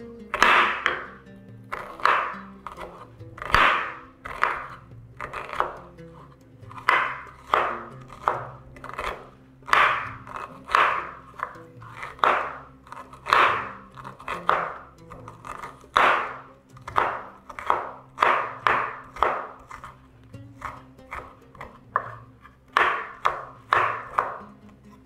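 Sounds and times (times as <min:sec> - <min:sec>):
soft background music: 0:00.0 - 0:25.0
knife chopping onion on wooden board: 0:00.2 - 0:25.0.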